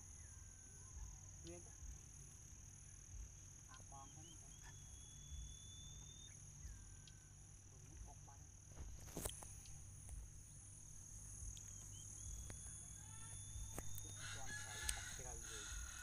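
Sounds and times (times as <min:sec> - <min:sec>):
high-pitched insect trilling: 0:00.0 - 0:16.0
whistle-like bird calls: 0:04.0 - 0:07.2.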